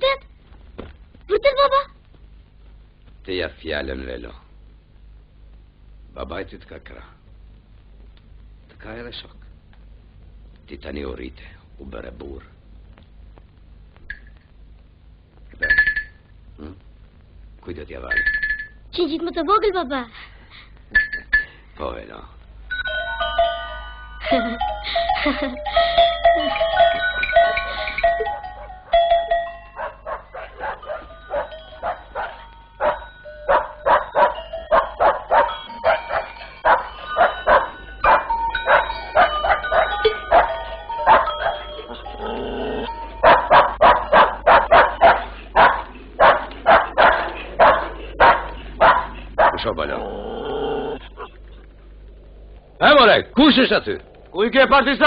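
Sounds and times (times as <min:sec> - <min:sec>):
dog barking: 0:29.8 - 0:42.0, 0:43.2 - 0:49.7.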